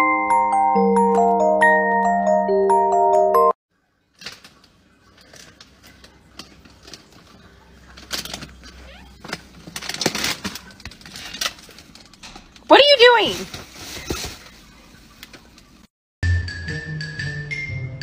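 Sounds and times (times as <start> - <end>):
animal rustling plastic bags: 4.1 - 15.8.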